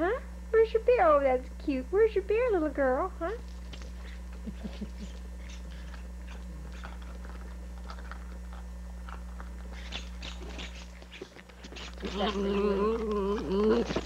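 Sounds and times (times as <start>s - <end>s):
puppy chewing tennis ball: 3.5s - 14.0s.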